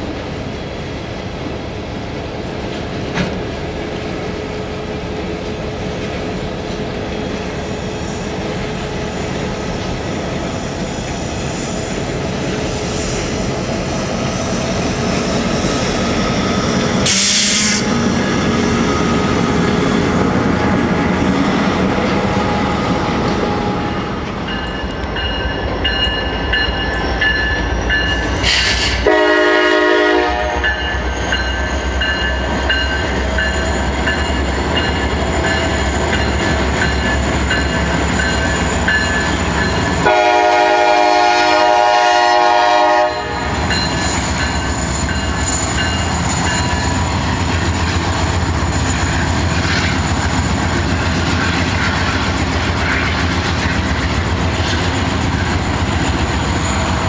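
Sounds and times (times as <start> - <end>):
freight train rumbling by: 0.0 - 57.0
locomotive air horn blasts: 17.0 - 17.9, 28.5 - 30.8, 40.0 - 43.6.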